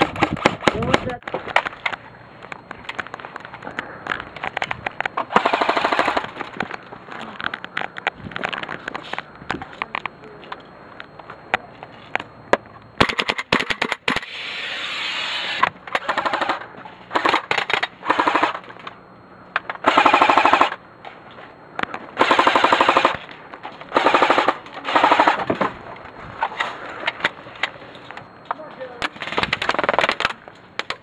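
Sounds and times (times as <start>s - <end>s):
airsoft guns firing bursts: 5.3s - 6.4s, 16.0s - 18.6s, 19.8s - 20.8s, 22.2s - 23.3s, 23.9s - 25.5s.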